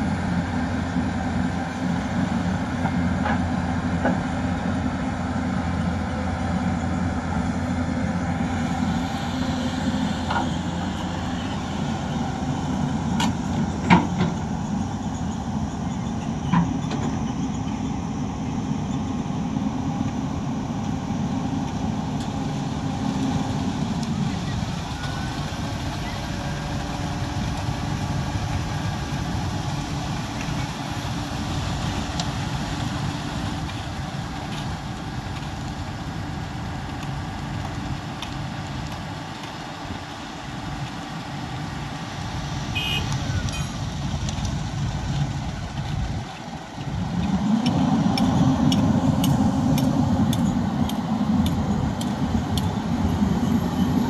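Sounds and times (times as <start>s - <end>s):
diesel machinery engine running: 0.0s - 54.0s.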